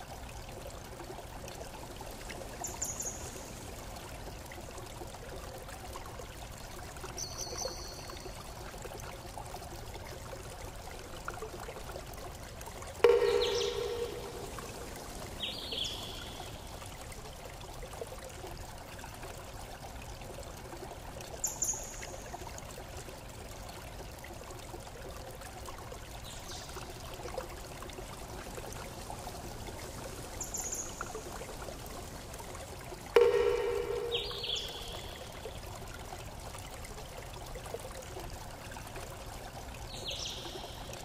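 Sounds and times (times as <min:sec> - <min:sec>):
rushing water: 0:00.0 - 0:41.0
high-pitched chirps: 0:13.0 - 0:14.6, 0:33.2 - 0:35.3.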